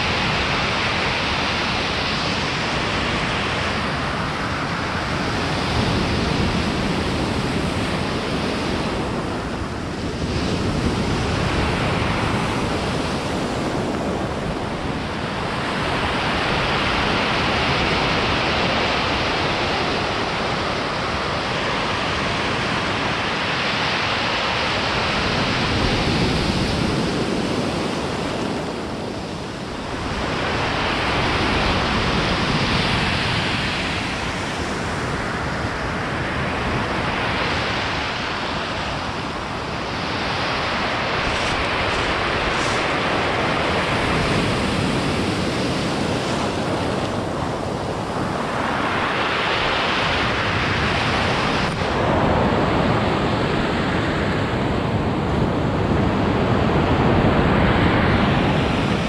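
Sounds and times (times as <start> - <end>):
waves breaking on pebble beach: 10.2 - 54.2.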